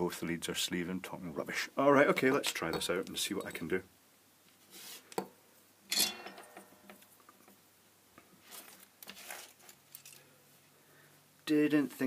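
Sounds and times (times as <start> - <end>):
brief glass ring: 5.9 - 6.6.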